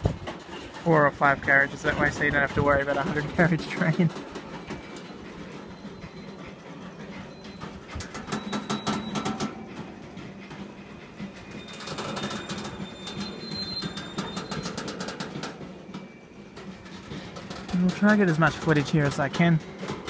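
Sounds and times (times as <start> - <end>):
train rumble: 0.0 - 20.0
wheels clicking over rail joints: 0.0 - 20.0
high wheel squeal: 4.5 - 18.2.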